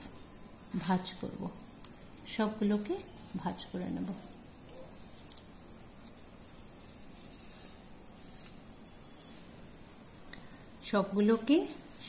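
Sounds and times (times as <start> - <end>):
high-pitched background whine: 0.0 - 12.0
paper strips being folded: 2.6 - 9.2.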